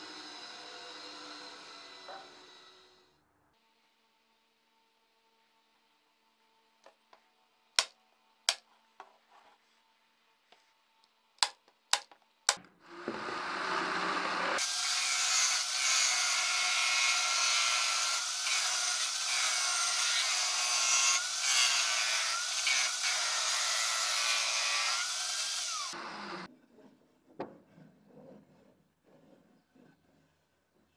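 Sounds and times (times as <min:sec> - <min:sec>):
wooden parts knocking on workbench: 0:11.4 - 0:13.2
drill press sanding wood: 0:12.9 - 0:26.5.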